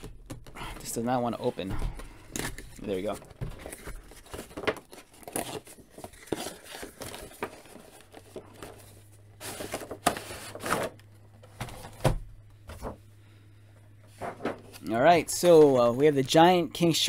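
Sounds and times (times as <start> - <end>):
cardboard and plastic crinkling scrapes: 2.6 - 11.0.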